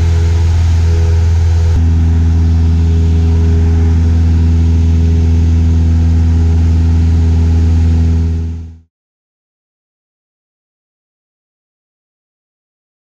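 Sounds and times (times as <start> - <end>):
airplane engine and propeller drone: 0.0 - 8.8.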